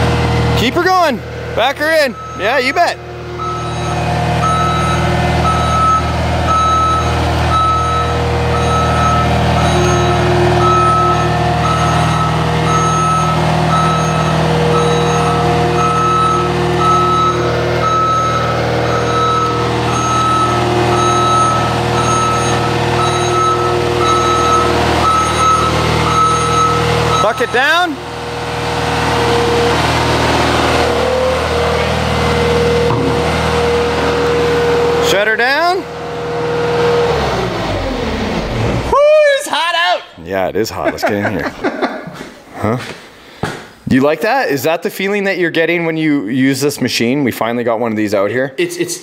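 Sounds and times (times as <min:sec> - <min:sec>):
diesel engine running: 0:00.0 - 0:39.2
backup alarm beeping: 0:01.9 - 0:28.0.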